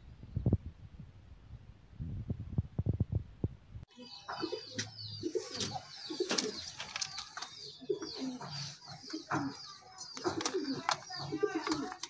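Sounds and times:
pigeons cooing: 4.1s - 12.0s.

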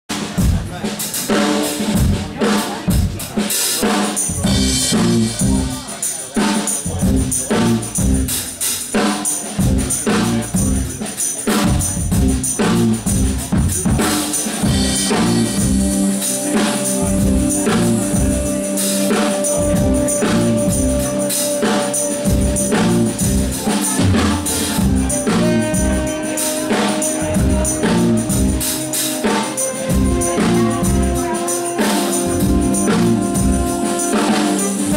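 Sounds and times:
live band playing upbeat groove: 0.1s - 34.9s
saxophones holding notes: 14.7s - 34.9s.

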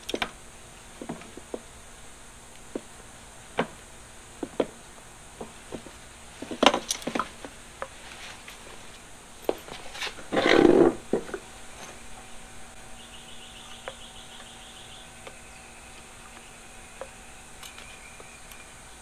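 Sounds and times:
light clicks and knocks of metal parts: 17.0s - 18.7s.

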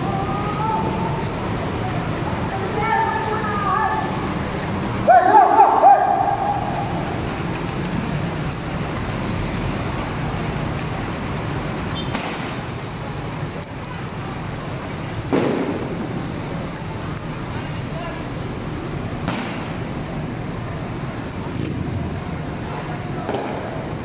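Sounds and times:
street traffic: 0.0s - 24.0s
sharp crack: 12.0s - 12.6s, 15.3s - 16.2s, 19.2s - 19.9s, 23.2s - 23.8s.

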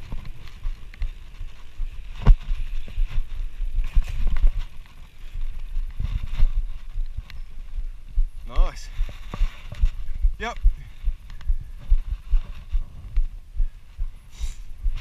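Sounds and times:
bike rattles and knocks: 0.0s - 7.6s
wind rumble on microphone: 0.0s - 15.0s.

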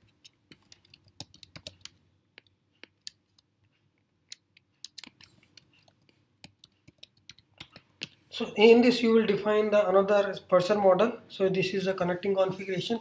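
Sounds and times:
keyboard keystrokes: 0.5s - 2.0s.

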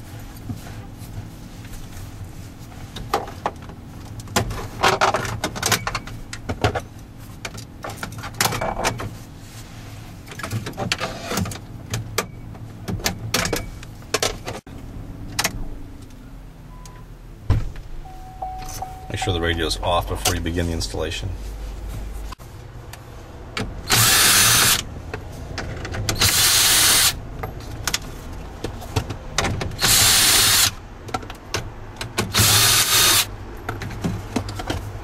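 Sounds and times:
low steady hum: 11.4s - 23.4s.

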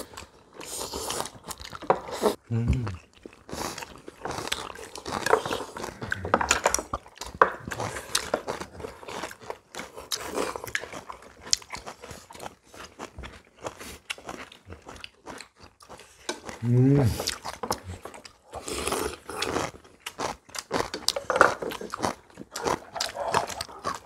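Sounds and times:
people chewing and slurping: 0.0s - 24.0s.

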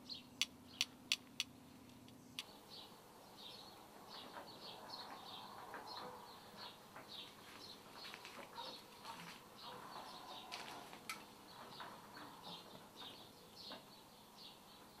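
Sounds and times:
small birds chirping: 0.0s - 15.0s
soft outdoor hiss: 0.0s - 15.0s
sharp clicks: 0.4s - 2.5s.

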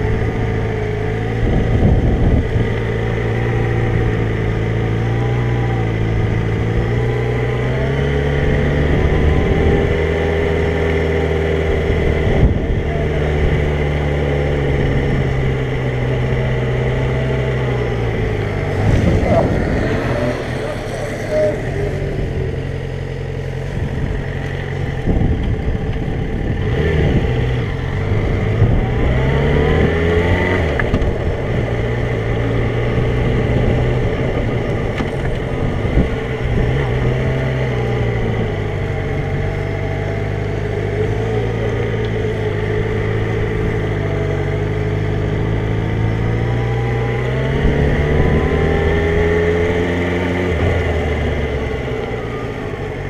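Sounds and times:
motorcycle engine accelerating: 0.0s - 53.0s.

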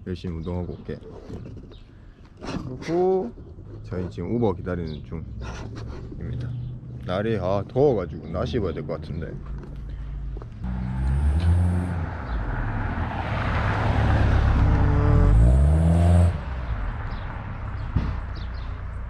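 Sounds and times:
cars passing and accelerating: 4.3s - 19.0s
tyre noise: 13.6s - 16.5s.

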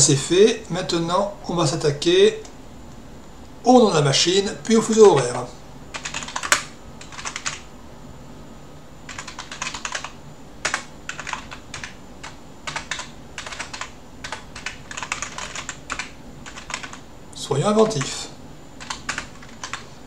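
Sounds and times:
computer keyboard typing: 5.9s - 7.7s, 9.1s - 17.0s, 17.7s - 18.2s, 18.8s - 20.0s.

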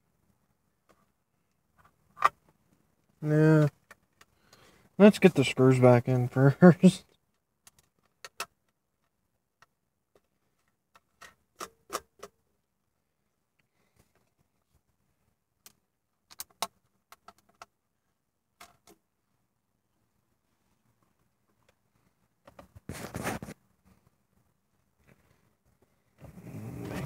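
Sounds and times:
plastic trim and screws clicking: 15.6s - 17.7s.

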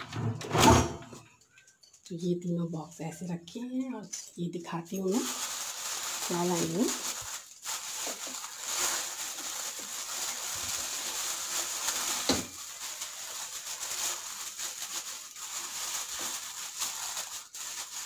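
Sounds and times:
plastic bag rustling: 4.7s - 18.0s.

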